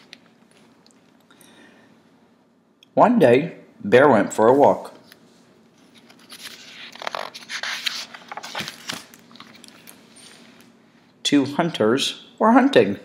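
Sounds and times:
book pages rustling: 5.0s - 10.7s.

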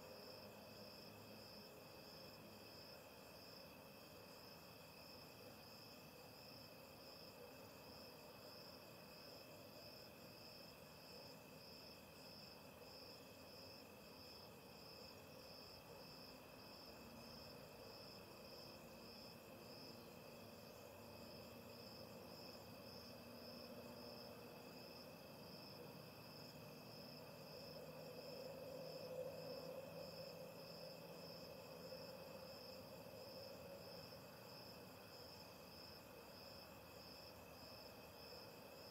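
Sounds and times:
crickets chirping: 0.0s - 38.9s.

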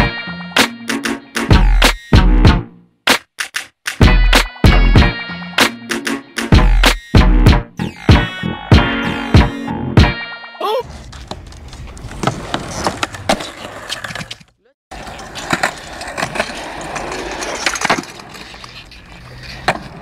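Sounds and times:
skateboard wheels rolling on concrete: 10.8s - 20.0s
skateboard clacking on ground: 11.1s - 20.0s.

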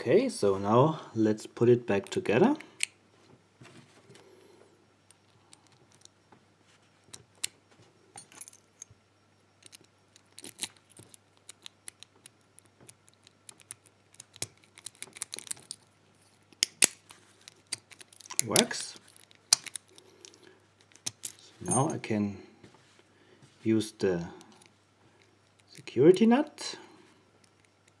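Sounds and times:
metallic padlock clicks: 9.6s - 22.0s.

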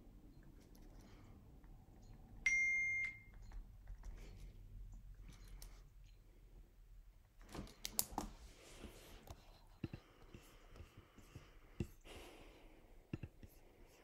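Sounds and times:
light clicks and taps: 9.3s - 12.0s.

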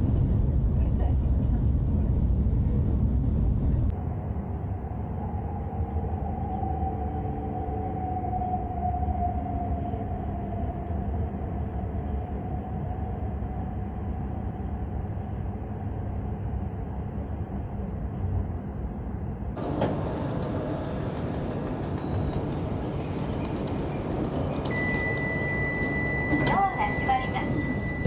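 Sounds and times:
train rumbling with falling whine: 0.0s - 28.0s.

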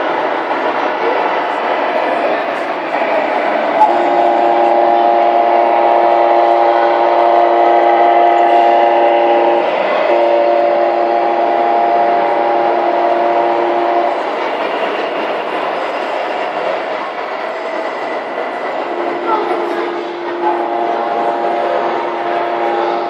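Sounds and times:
noisy hall hum: 0.0s - 23.0s
horn-like chord blast: 3.8s - 14.1s, 19.0s - 23.0s.

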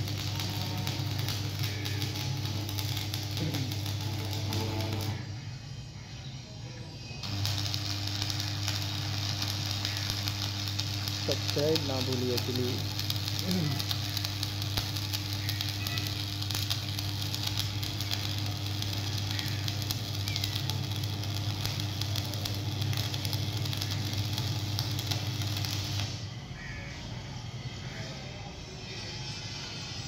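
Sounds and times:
welding arc crackling: 0.0s - 5.3s, 7.2s - 26.4s
low hum: 0.0s - 11.7s.

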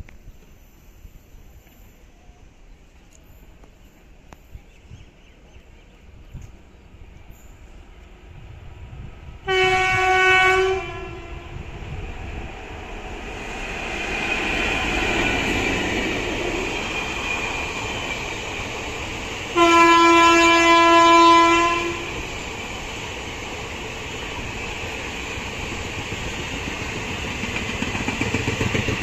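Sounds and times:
passing train rumble: 1.0s - 29.0s
locomotive horn blasts: 9.5s - 11.7s, 19.5s - 22.2s.

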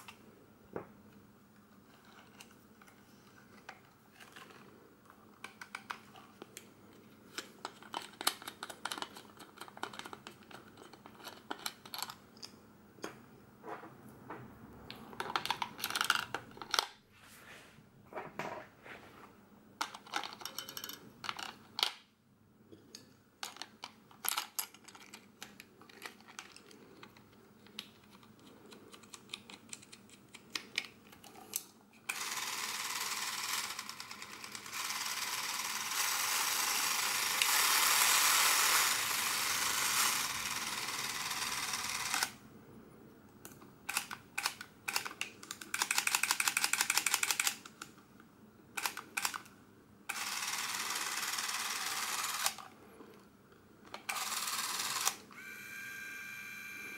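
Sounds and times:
plastic and metal parts clicking: 3.6s - 12.5s, 15.0s - 17.0s, 19.8s - 22.0s, 23.4s - 32.2s, 43.4s - 47.9s.

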